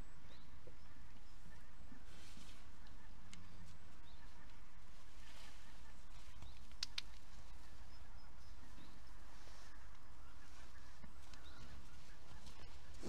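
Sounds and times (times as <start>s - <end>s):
faint bird chirps: 0.0s - 13.0s
sharp clicks: 6.5s - 7.2s.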